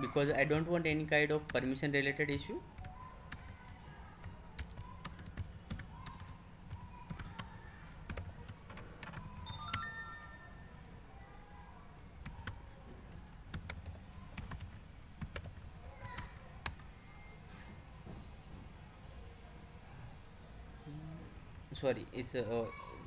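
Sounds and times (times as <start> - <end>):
typing on computer keyboard: 2.8 - 9.8, 12.2 - 16.9.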